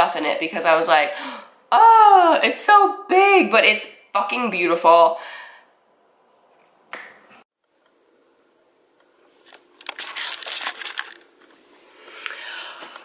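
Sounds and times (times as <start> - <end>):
rustling and crinkling handling noise: 9.2 - 12.3.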